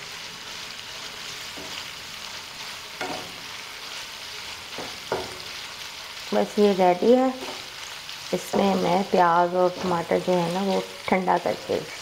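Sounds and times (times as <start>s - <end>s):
mince sizzling in a frying pan: 0.0s - 12.0s
spatula scraping a pan: 7.3s - 9.0s.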